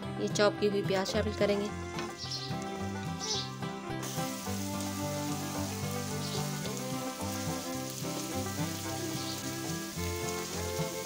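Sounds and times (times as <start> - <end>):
background music: 0.0 - 11.0
onions sizzling in oil: 3.2 - 11.0.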